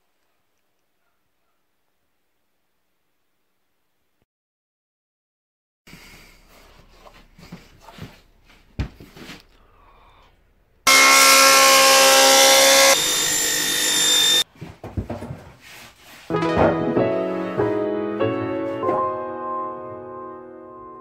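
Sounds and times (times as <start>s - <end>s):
power saw cutting wood: 10.9s - 14.4s.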